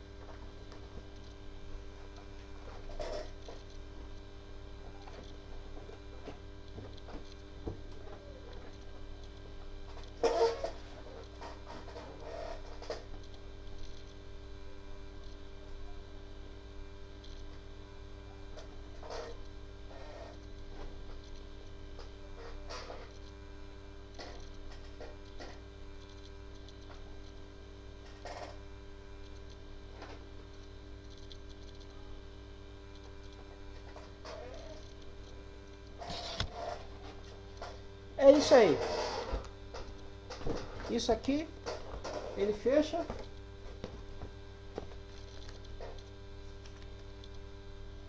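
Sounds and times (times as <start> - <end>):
electrical hum: 0.0 - 48.0
card crinkling and rustling: 43.2 - 47.4.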